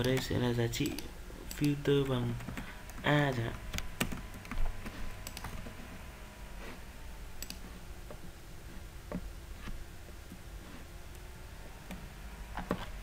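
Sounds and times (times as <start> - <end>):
mouse clicks: 0.0 - 2.0, 7.4 - 7.7
faint low hum: 0.0 - 13.0.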